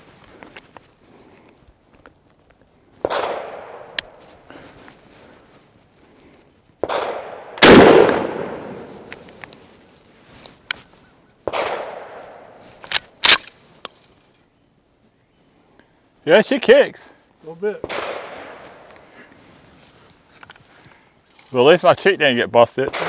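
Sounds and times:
loud shotgun blast: 3.0 - 3.9, 6.8 - 9.1, 11.5 - 12.2, 17.8 - 18.6
quieter gunshots: 3.0 - 4.2, 6.8 - 9.2, 11.4 - 12.5, 17.8 - 18.8.

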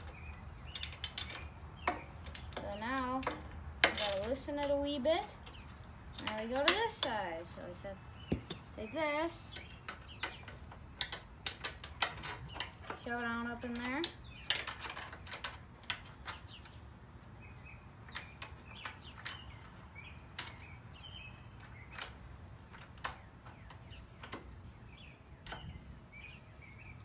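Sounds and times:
socket wrench clicking on bolts: 0.0 - 7.3, 9.5 - 16.8
small birds chirping: 0.0 - 27.0.

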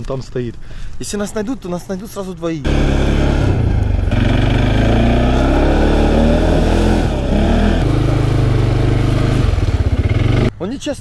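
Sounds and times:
quad bike engine revving: 2.6 - 10.6.

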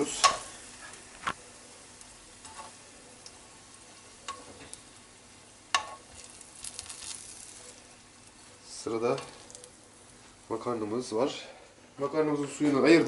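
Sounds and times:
garlic sizzling in oil: 0.0 - 11.9
metal tongs clicking on pan: 0.2 - 0.4, 4.2 - 4.8, 5.7 - 7.2.

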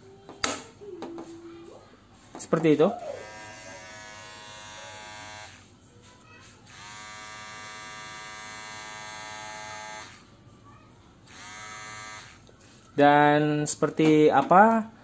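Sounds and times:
hair clipper buzzing: 3.0 - 5.7, 6.7 - 10.3, 11.2 - 12.5.

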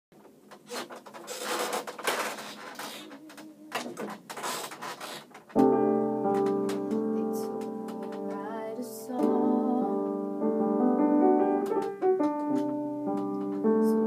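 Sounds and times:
piano chord ringing: 5.6 - 14.0.

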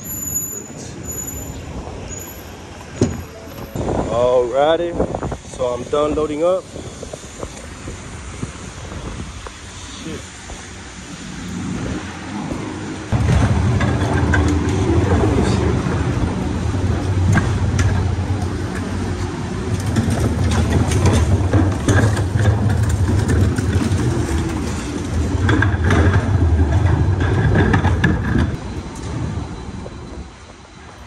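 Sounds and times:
vehicle engine rumbling: 0.0 - 31.0
knocks and rattles: 13.1 - 28.6.

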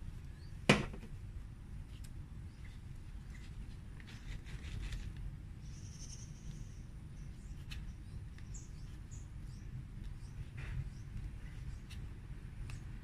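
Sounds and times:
small birds chirping: 2.4 - 4.9, 5.6 - 13.0.

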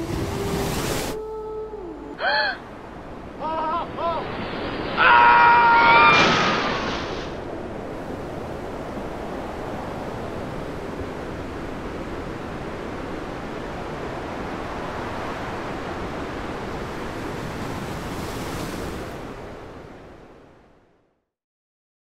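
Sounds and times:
ocean waves washing: 0.0 - 20.9.

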